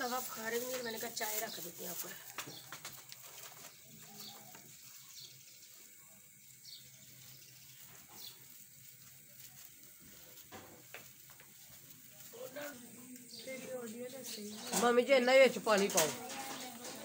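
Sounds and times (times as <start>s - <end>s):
faint bird chirps: 3.5s - 8.5s.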